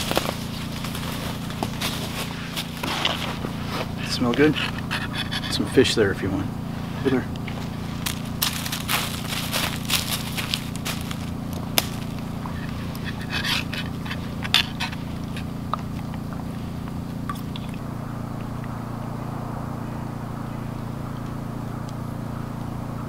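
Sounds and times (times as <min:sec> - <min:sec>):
dog rustling in dry leaves: 0:00.0 - 0:04.8, 0:06.7 - 0:15.5
low background hum: 0:00.0 - 0:23.0.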